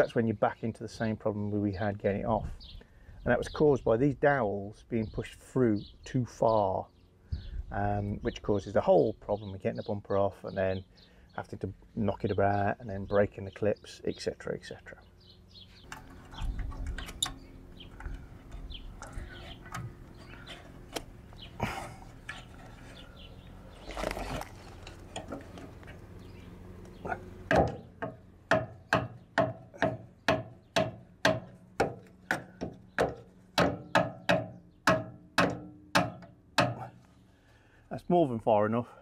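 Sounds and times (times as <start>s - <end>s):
hand tool handling noise: 15.8s - 28.1s.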